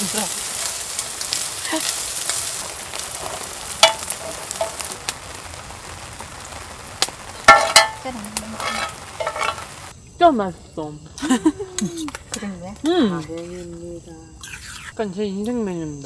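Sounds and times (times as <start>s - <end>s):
rain hiss: 0.0s - 16.0s
spoons clinking on metal bowls: 7.5s - 8.0s, 8.6s - 9.7s.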